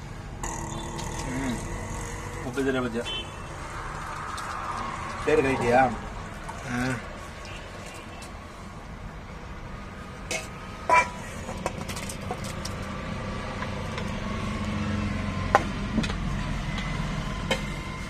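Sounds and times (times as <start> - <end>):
lorry engine drone in cab: 13.0 - 18.0.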